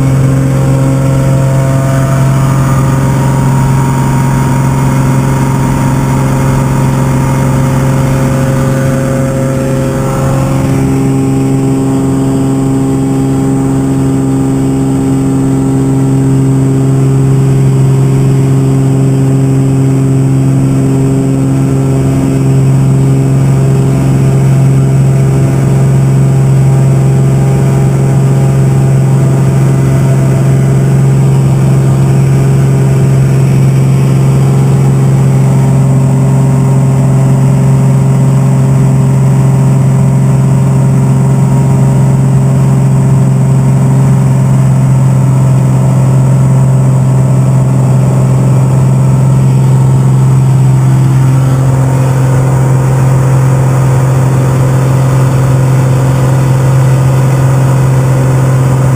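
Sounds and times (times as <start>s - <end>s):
airplane engine drone: 0.0s - 58.9s.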